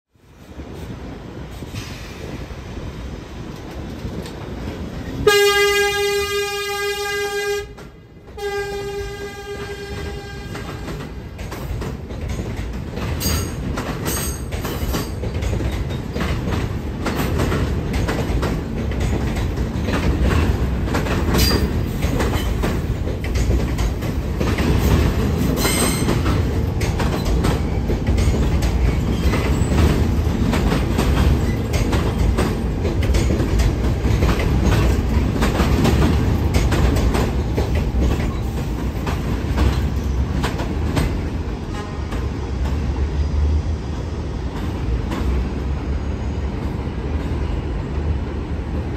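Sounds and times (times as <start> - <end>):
train rumbling on steel track: 0.1 - 48.9
train horn blasts: 5.2 - 11.0.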